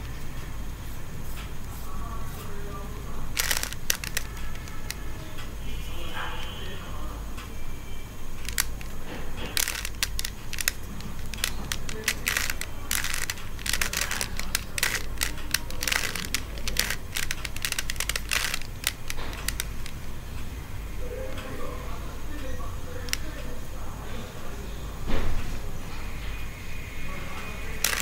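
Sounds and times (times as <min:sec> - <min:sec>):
puzzle cube clicking and rattling: 0:03.3 - 0:05.0, 0:08.4 - 0:20.1, 0:27.8 - 0:28.0.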